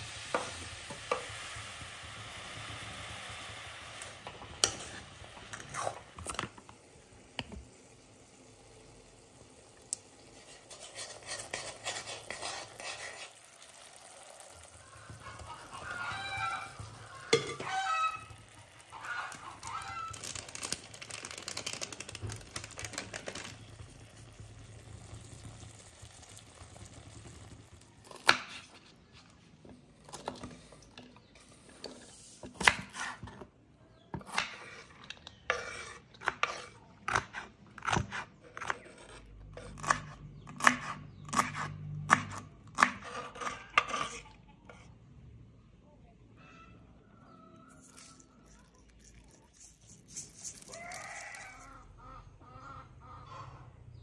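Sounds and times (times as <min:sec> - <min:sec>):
stir-frying in a wok: 0:00.0 - 0:06.4, 0:07.7 - 0:29.0
metal spoon scraping paste: 0:10.4 - 0:13.8, 0:38.6 - 0:40.0, 0:42.9 - 0:44.9, 0:47.7 - 0:51.8.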